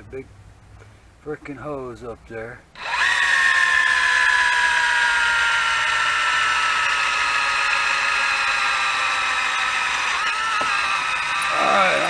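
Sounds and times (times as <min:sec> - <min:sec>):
cordless drill whining: 0:02.8 - 0:12.0.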